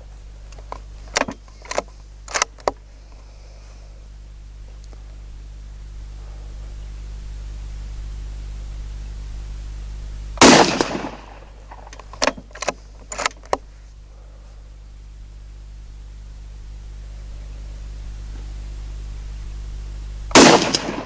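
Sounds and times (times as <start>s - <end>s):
rifle bolt clicks: 0.7s - 2.8s, 11.8s - 13.6s
rifle shot: 10.4s - 11.6s, 20.3s - 21.0s.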